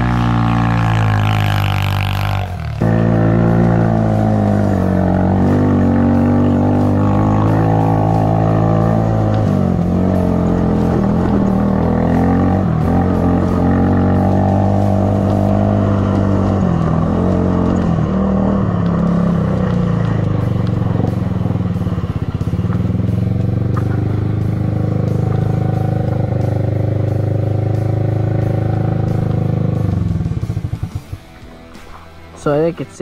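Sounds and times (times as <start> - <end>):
background music: 0.0 - 33.0
quad engine running: 0.0 - 33.0.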